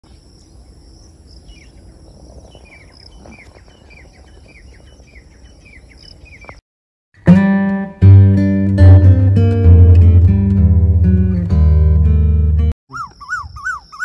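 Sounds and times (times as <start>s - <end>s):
bird chirping: 0.0s - 6.6s, 12.9s - 14.0s.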